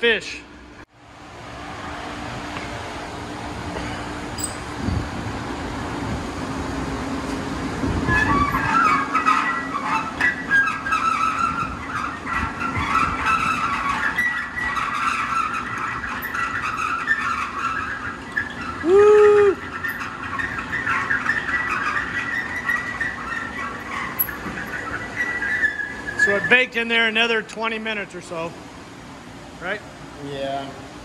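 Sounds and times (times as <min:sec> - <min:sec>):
metal rack scraping and rattling: 0:07.3 - 0:18.8, 0:19.6 - 0:27.1
loud squeal: 0:08.0 - 0:26.6.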